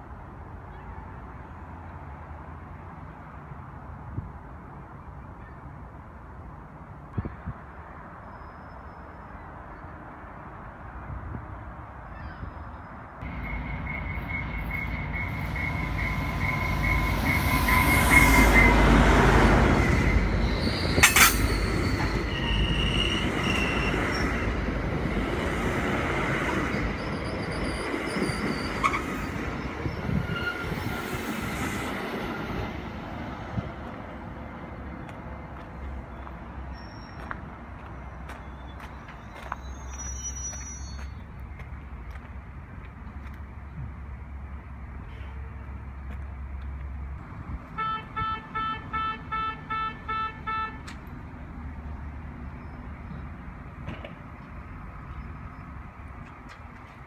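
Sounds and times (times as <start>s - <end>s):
high-pitched wheel squeal: 12.2s - 24.6s, 26.7s - 31.2s, 39.2s - 41.2s
train wheels rumbling on rails: 13.2s - 36.4s
sharp clank: 21.0s - 21.6s.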